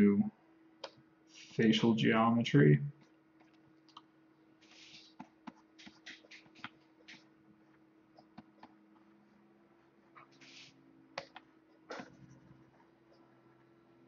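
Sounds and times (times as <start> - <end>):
low steady hum: 0.0 - 14.0
faint clicks and taps: 0.8 - 1.0, 3.0 - 4.1, 5.0 - 9.1, 11.2 - 13.3.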